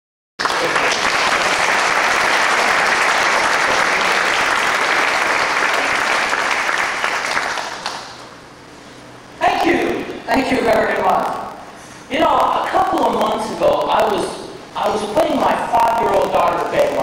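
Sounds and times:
audience applauding: 0.4s - 8.4s.

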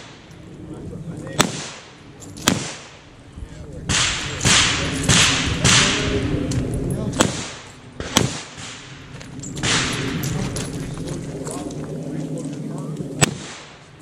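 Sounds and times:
revolver gunshots: 1.4s - 3.2s, 3.8s - 6.4s, 7.1s - 10.5s, 13.2s - 14.0s.

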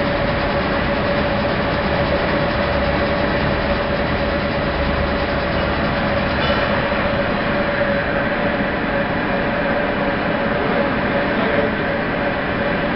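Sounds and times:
rope-making machine whirring: 0.0s - 12.9s.

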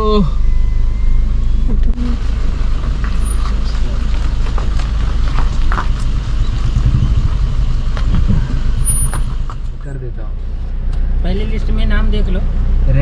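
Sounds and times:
car rolling over wet gravel: 2.4s - 9.6s.

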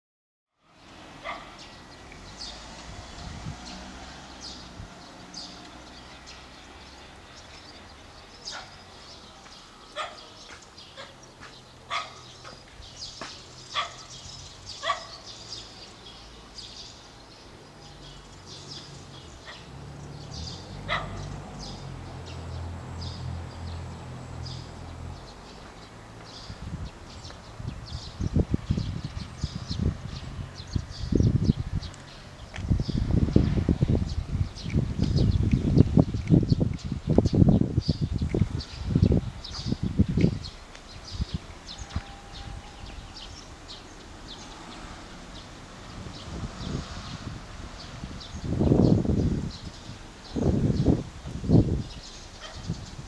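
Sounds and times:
dog barking: 1.2s - 1.6s, 8.5s - 8.8s, 10.0s - 10.3s, 11.9s - 12.6s, 13.8s - 14.1s, 14.8s - 15.2s, 20.9s - 21.3s, 52.4s - 52.7s.

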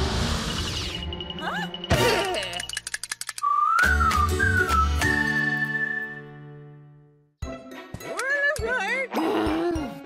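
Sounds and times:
rattle of clicks: 2.5s - 3.4s
whistled tune: 3.4s - 6.7s.

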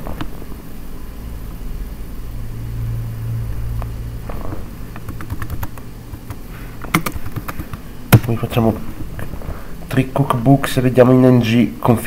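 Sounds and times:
steady low hum: 0.0s - 12.0s
keyboard typing: 4.9s - 8.4s.

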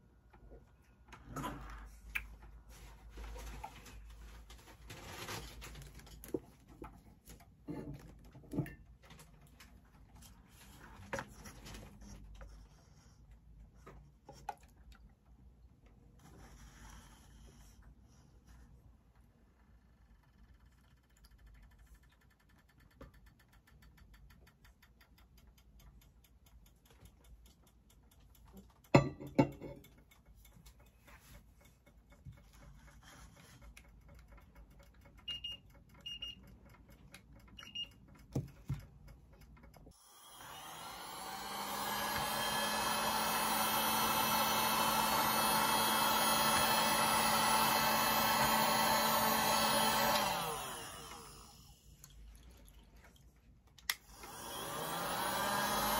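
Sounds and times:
heat gun blowing: 40.0s - 51.9s, 53.9s - 55.9s.

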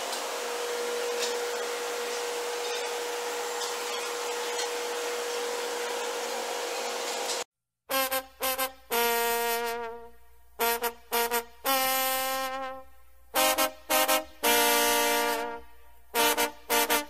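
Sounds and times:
machinery hum and whine: 0.0s - 7.4s.

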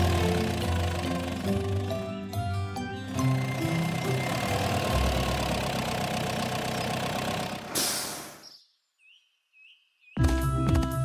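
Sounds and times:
truck engine running: 0.0s - 8.4s
short hiss: 7.7s - 8.4s.

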